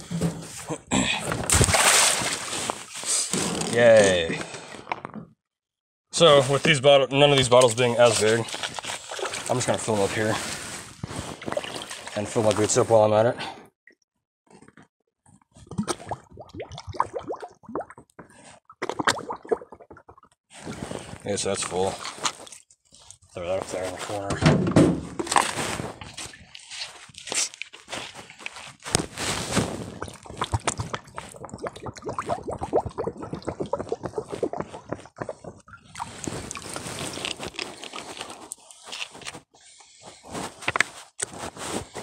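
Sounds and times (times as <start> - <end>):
jug filling with water gurgling: 8.0 - 10.7, 11.3 - 12.8, 15.6 - 22.0, 29.3 - 38.3
bottle glugging underwater: 11.3 - 12.2, 15.5 - 21.2, 29.4 - 38.3.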